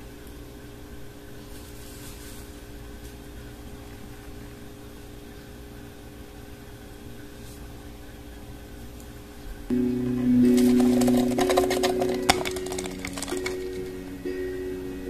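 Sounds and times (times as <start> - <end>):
appliance hum with hiss: 0.0 - 9.7.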